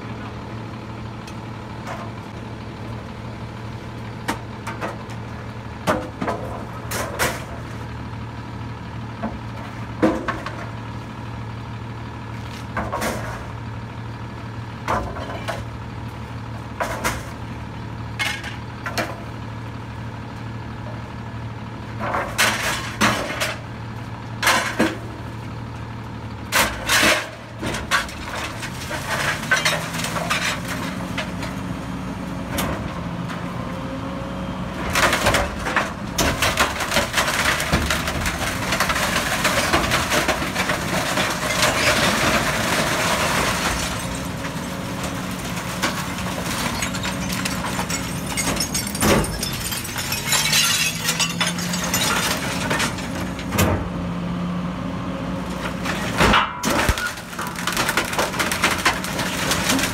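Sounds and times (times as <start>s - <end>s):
garbage truck engine idling: 0.0s - 59.9s
wooden boards clattering in hopper: 4.2s - 7.8s, 9.2s - 10.8s, 12.6s - 13.6s, 14.8s - 15.7s, 16.8s - 17.4s, 22.0s - 23.6s, 24.4s - 25.2s, 26.5s - 31.6s, 34.8s - 53.9s, 55.5s - 59.9s.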